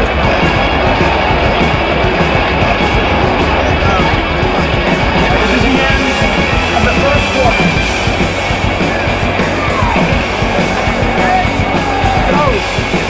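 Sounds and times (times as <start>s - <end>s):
rock music with guitar: 0.0s - 13.0s
stadium crowd din: 0.0s - 13.0s.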